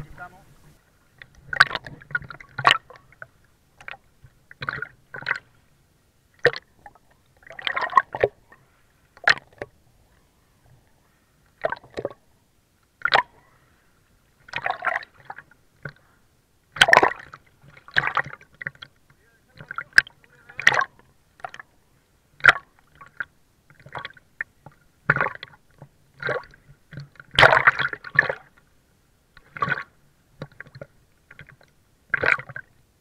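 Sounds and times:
water sloshing and gurgling: 0:00.0 - 0:33.0.

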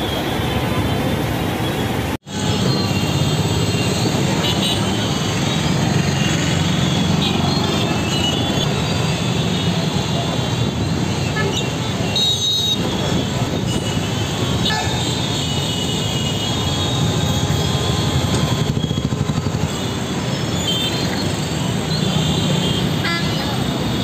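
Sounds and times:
idling and creeping engines: 0:12.8 - 0:24.0.

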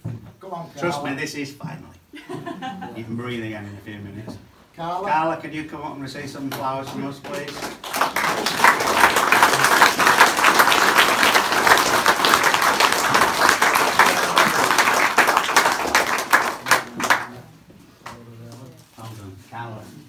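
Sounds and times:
audience applauding: 0:06.6 - 0:17.5.

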